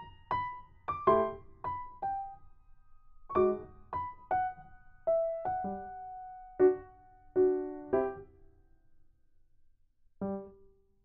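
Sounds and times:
gentle piano tune: 0:00.0 - 0:08.4, 0:10.2 - 0:10.7.

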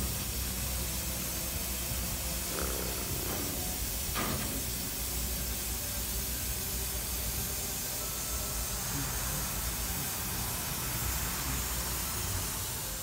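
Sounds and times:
steam hissing: 0:00.0 - 0:13.0.

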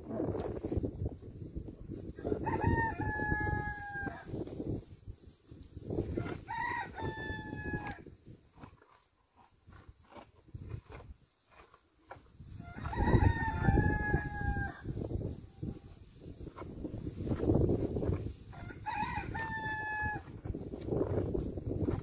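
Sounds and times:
rooster crowing: 0:02.2 - 0:04.3, 0:06.2 - 0:08.0, 0:12.6 - 0:14.9, 0:18.5 - 0:20.2.

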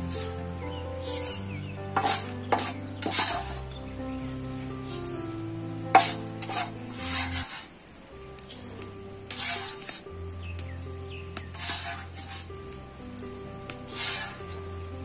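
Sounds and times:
background music low notes: 0:00.0 - 0:15.0
coffee beans sizzling: 0:00.0 - 0:15.0
spatula scraping pan: 0:01.0 - 0:03.7, 0:05.9 - 0:07.8, 0:08.5 - 0:10.1, 0:11.4 - 0:12.6, 0:13.9 - 0:14.7.

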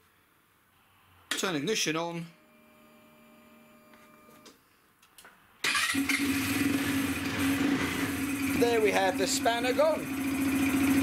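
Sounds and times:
scooter engine idling: 0:05.8 - 0:11.0.

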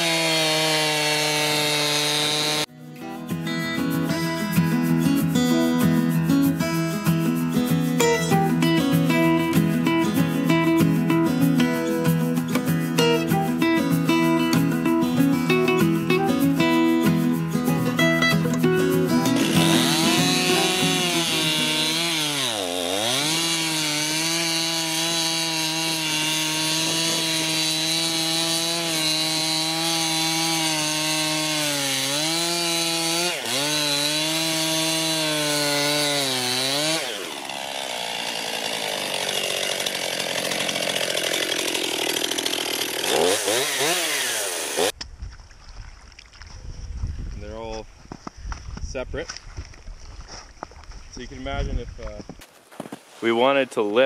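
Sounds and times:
chainsaw cutting through ice: 0:00.0 - 0:02.7, 0:19.2 - 0:45.0.

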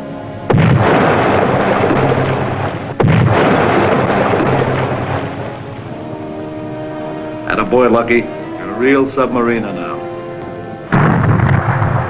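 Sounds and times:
underwater explosions: 0:00.4 - 0:08.2, 0:10.9 - 0:12.0.

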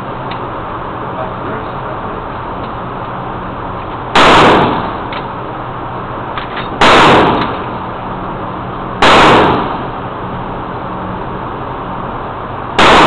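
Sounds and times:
loud gunshots indoors: 0:04.1 - 0:05.1, 0:06.8 - 0:07.8, 0:09.0 - 0:10.1, 0:12.8 - 0:13.0.

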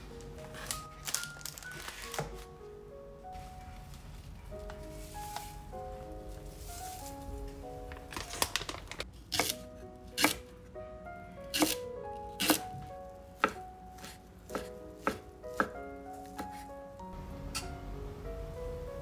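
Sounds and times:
soft background music: 0:00.0 - 0:19.0
knife chopping on wooden board: 0:09.3 - 0:09.6, 0:10.2 - 0:10.4, 0:11.5 - 0:11.8, 0:12.4 - 0:12.8, 0:13.4 - 0:15.8.

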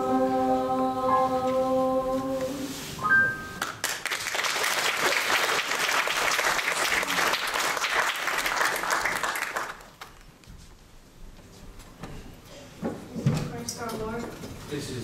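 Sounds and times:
audience applauding: 0:03.6 - 0:10.2.

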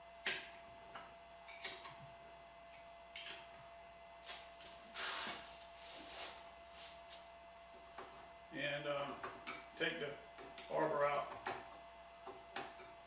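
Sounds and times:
light metal clinks and taps: 0:10.4 - 0:11.7.

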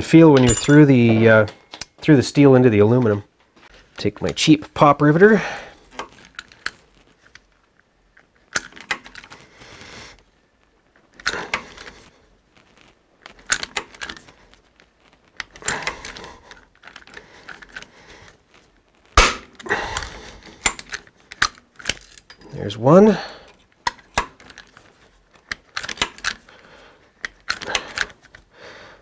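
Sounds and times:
pop riveter metallic crunching clicks: 0:19.2 - 0:22.0.

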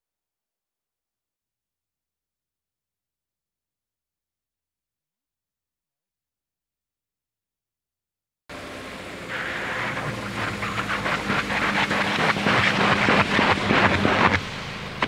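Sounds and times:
car engine hum: 0:08.5 - 0:15.0.

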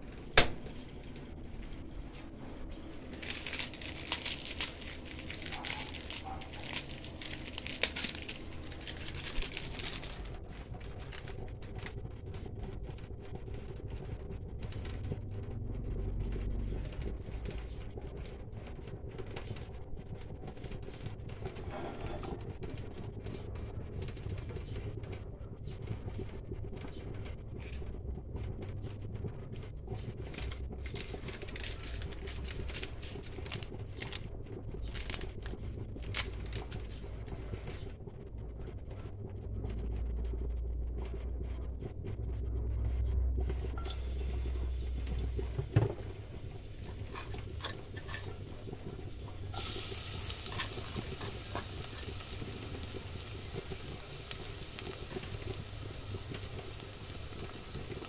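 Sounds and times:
oil crackling in a saucepan: 0:02.8 - 0:38.4, 0:43.5 - 0:58.0
garlic sizzling in hot oil: 0:46.2 - 0:58.0.

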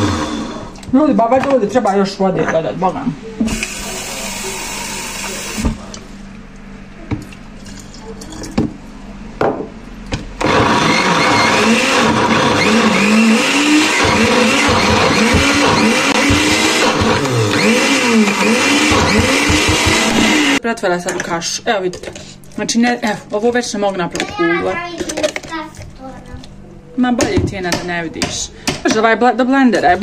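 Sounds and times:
blender motor running: 0:00.0 - 0:00.8, 0:03.5 - 0:05.7, 0:10.4 - 0:20.6
knocks and clicks: 0:18.9 - 0:20.4.

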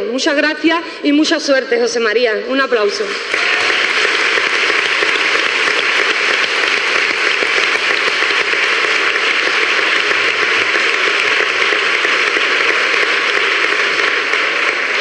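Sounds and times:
people applauding: 0:03.3 - 0:15.0.

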